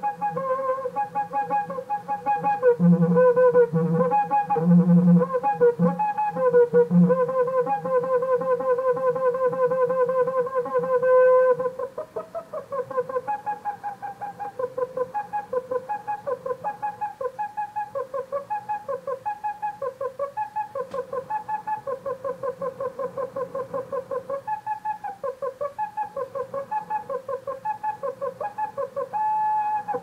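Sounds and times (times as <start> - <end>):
faint click: 20.9 - 21.1.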